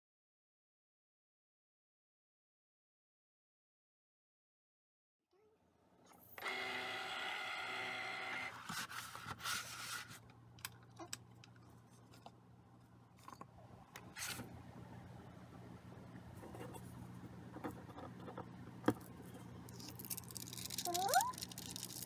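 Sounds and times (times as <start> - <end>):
cutting machine motor whining: 6.2 - 8.6
metallic foil crinkling: 19.7 - 22.0.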